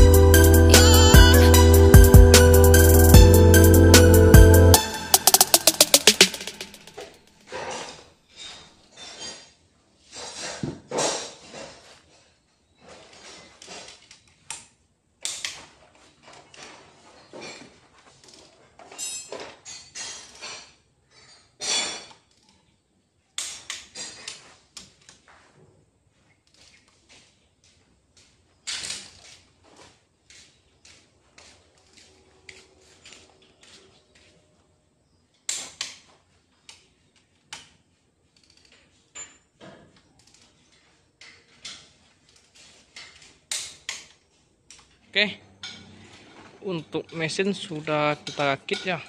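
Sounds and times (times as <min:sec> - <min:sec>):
metal tools clinking: 0:18.8 - 0:22.4.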